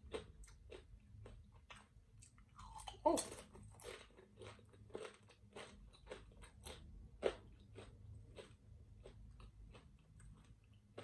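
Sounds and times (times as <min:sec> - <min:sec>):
crunchy chewing of chip: 0:00.0 - 0:11.0.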